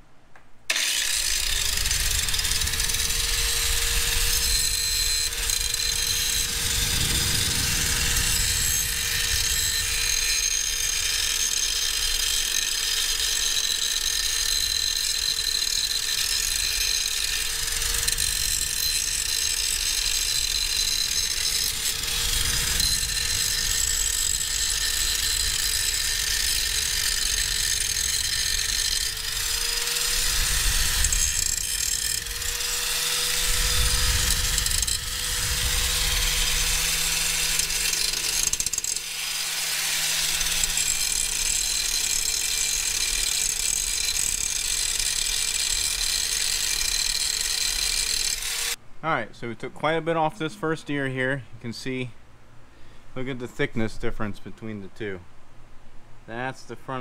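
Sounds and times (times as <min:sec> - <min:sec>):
angle grinder grinding metal: 0:00.7 - 0:48.8.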